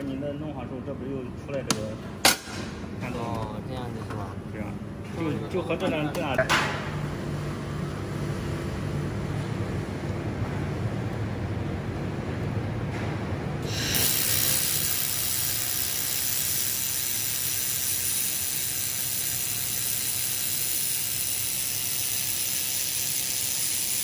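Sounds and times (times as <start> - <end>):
laser welder hissing: 13.6 - 24.0.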